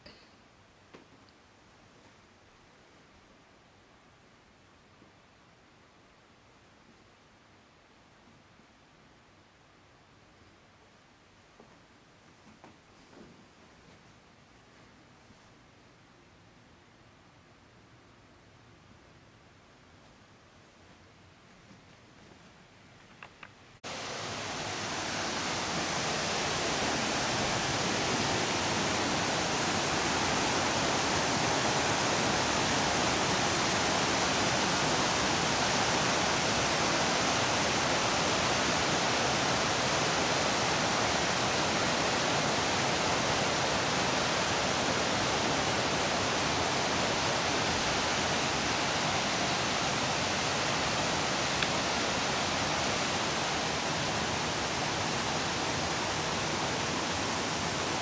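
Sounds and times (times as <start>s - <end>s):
water rushing over rocks: 23.9s - 58.0s.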